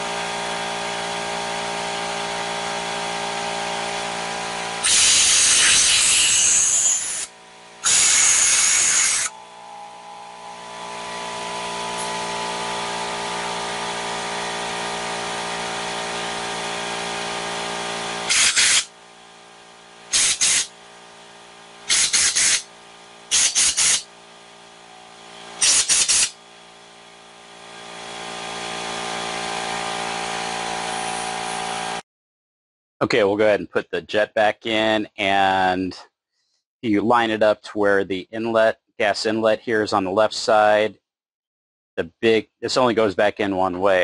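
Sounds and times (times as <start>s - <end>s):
air compressor humming: 0.0s - 32.0s
compressed air hissing: 4.8s - 9.3s, 18.3s - 18.9s, 20.1s - 20.7s, 21.9s - 22.7s, 23.3s - 24.0s, 25.6s - 26.4s.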